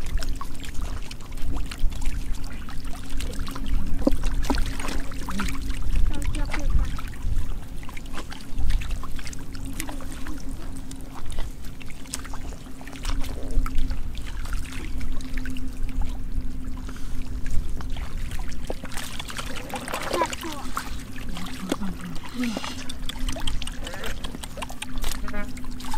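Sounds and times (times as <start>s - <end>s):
low uneven rumble: 0.0s - 25.9s
splashes in shallow water: 0.0s - 25.9s
steady low hum: 0.0s - 25.9s
fish thrashing: 17.9s - 25.9s.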